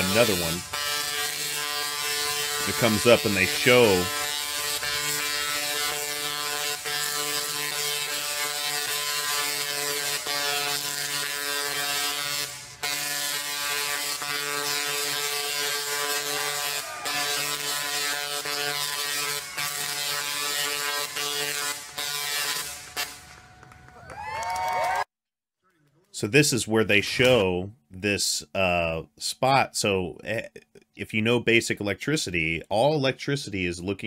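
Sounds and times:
tesla coil buzzing: 0:00.0 - 0:23.6.

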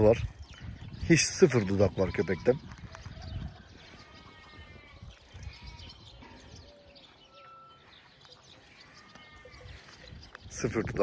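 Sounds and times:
birds chirping: 0:00.0 - 0:11.0
distant sheep bleating: 0:04.0 - 0:06.5.

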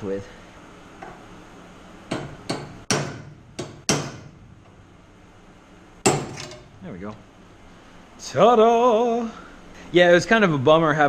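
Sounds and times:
hammer strikes on metal: 0:02.1 - 0:04.4, 0:06.0 - 0:06.7.

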